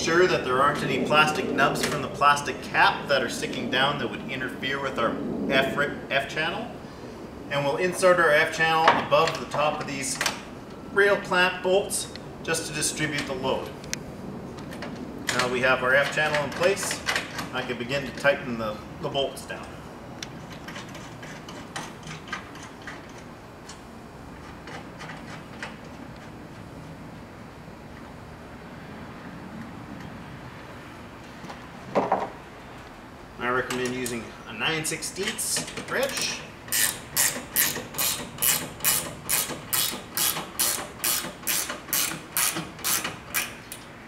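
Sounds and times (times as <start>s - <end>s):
ratcheting wrench clicking: 35.2s - 43.9s.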